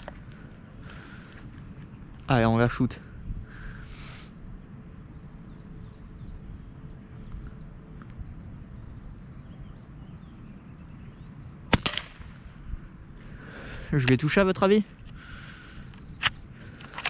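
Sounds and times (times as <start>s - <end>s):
suppressed rifle shot: 11.7s - 12.5s.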